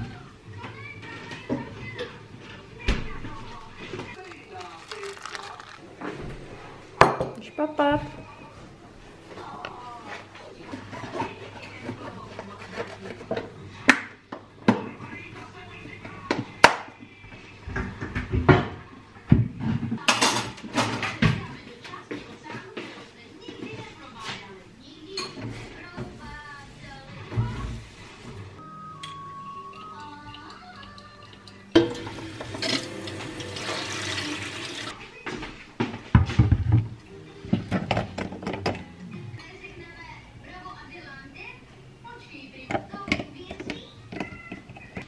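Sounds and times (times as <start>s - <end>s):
plastic lunch box clacking: 4.1s - 5.8s.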